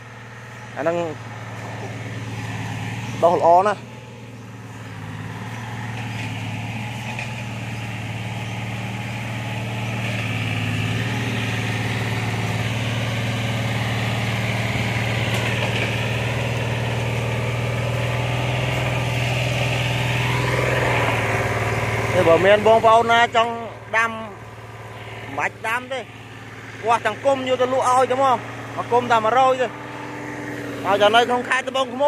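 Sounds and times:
heavy engine humming: 0.0s - 32.0s.

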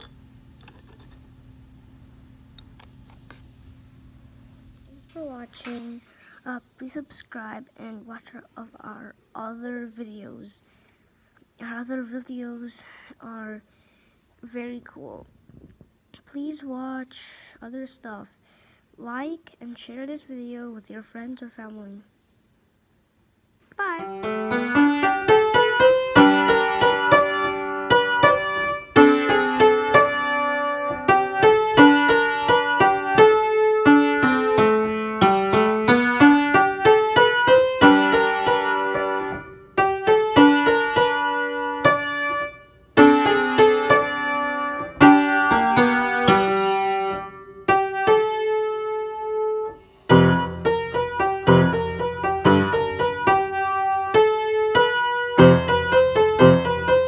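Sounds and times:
piano music: 24.0s - 57.0s.

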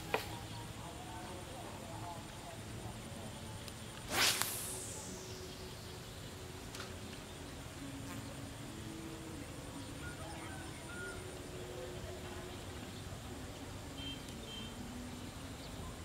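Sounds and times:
high insect drone: 0.0s - 16.0s
flying insect buzzing: 4.0s - 7.0s, 7.7s - 9.4s.

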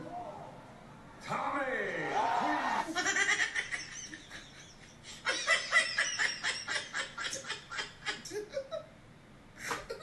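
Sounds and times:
man laughing hard: 2.8s - 8.8s.

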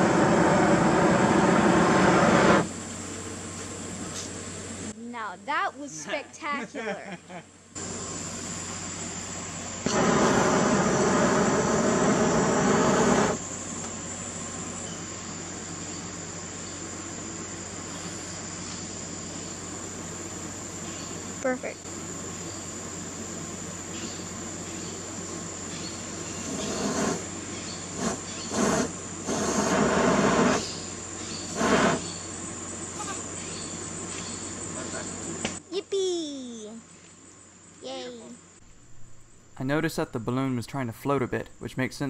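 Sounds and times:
gas flame jet roaring: 0.0s - 2.8s, 7.8s - 14.8s, 19.0s - 35.6s
gas flame rushing: 0.0s - 2.8s, 9.8s - 13.8s, 25.9s - 32.3s
insects buzzing: 0.0s - 42.0s
quiet steady hiss: 2.0s - 42.0s.

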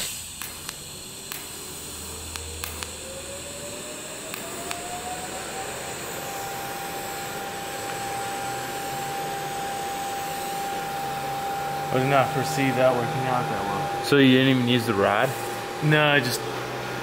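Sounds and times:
welding arc hissing: 0.0s - 17.0s.

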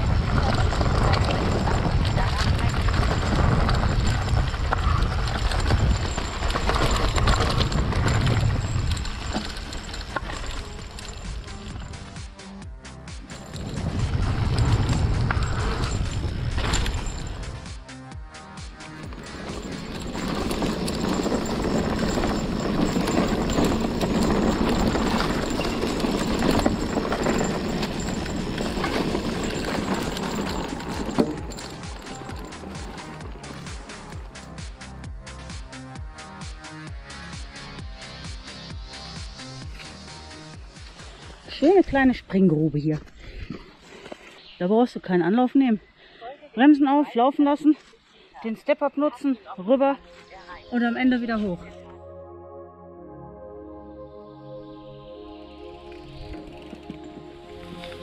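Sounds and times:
wind rushing over microphone: 0.0s - 9.4s, 13.6s - 17.4s
bike tyre rumble: 0.0s - 12.1s, 13.3s - 17.7s, 18.7s - 34.6s
rattling clicks from bike frame: 0.4s - 12.2s, 18.8s - 34.6s, 56.0s - 58.0s.

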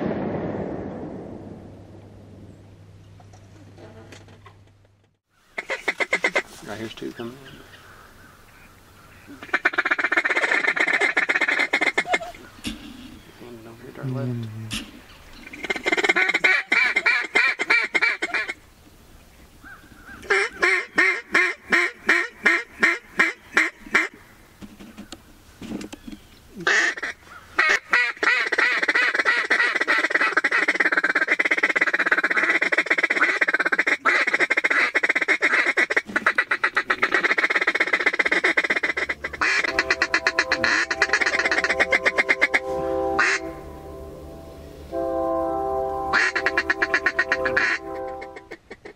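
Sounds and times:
duck quacking: 5.6s - 6.5s, 9.3s - 13.2s, 14.7s - 18.6s, 26.6s - 44.0s, 46.1s - 48.9s
duck feeding chatter: 14.0s - 18.6s, 26.6s - 43.4s
background music: 39.0s - 48.5s.

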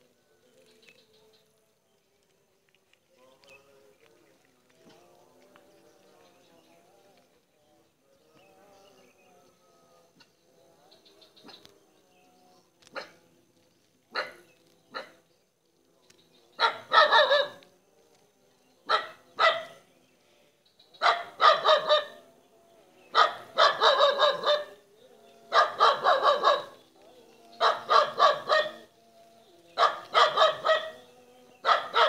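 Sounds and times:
animal barking calls: 12.9s - 13.2s, 14.1s - 15.3s, 16.6s - 17.7s, 18.8s - 19.9s, 21.0s - 22.3s, 23.1s - 28.9s, 29.7s - 32.0s.

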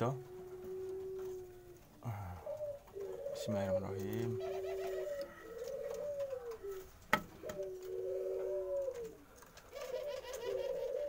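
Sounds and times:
dove cooing: 0.0s - 11.0s.

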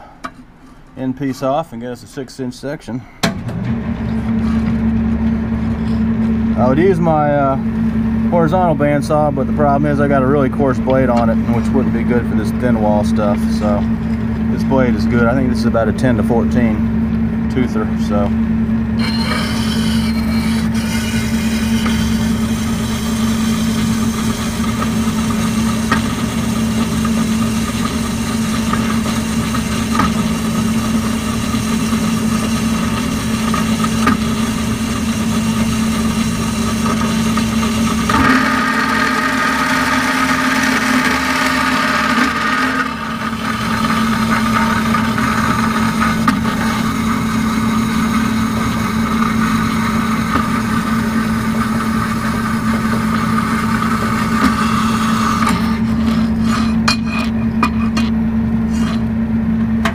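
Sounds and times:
bandsaw motor hum: 0.0s - 59.9s
saw blade rasping through steel: 19.0s - 58.1s, 58.7s - 59.0s.

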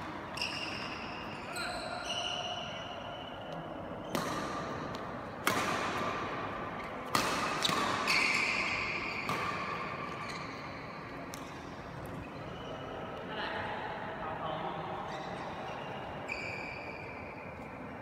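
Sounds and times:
shoe squeak: 0.2s - 4.2s, 7.6s - 9.4s, 10.0s - 11.0s, 12.2s - 13.0s, 15.1s - 17.6s
rackets striking shuttlecock: 3.3s - 10.5s.

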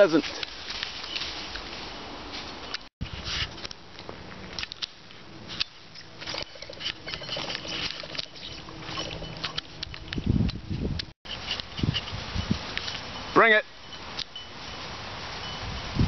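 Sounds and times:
brush and twigs crackling: 0.0s - 10.2s.

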